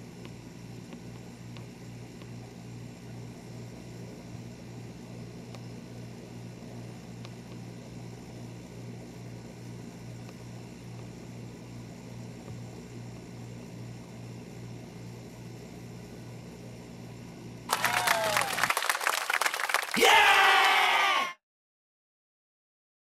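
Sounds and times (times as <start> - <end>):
low electrical hum: 0.0 - 21.3
faint ticks: 0.2 - 2.4.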